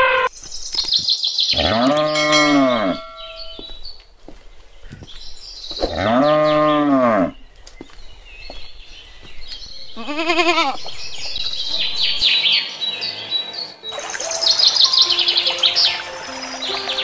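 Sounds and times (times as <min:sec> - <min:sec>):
wavering bleat: 0:00.0 - 0:00.3, 0:10.0 - 0:10.8
high bird chirps: 0:00.0 - 0:04.0, 0:04.8 - 0:17.0
cow mooing: 0:01.6 - 0:03.1, 0:05.9 - 0:07.4.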